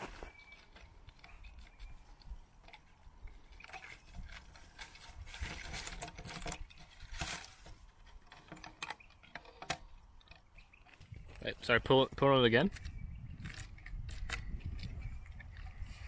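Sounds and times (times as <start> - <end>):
plastic cordage crinkling: 2.6 - 11.1.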